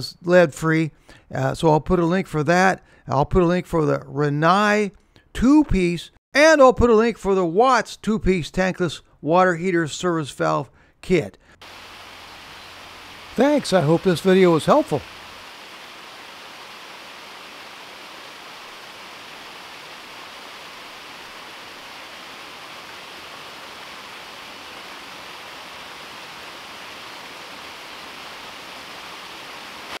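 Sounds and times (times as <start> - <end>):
small waterfall splashing over rocks: 11.6 - 30.0.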